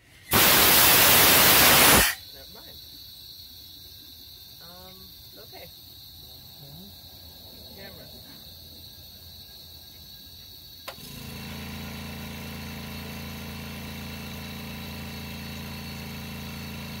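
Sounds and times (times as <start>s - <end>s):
even hiss: 0.0s - 3.4s.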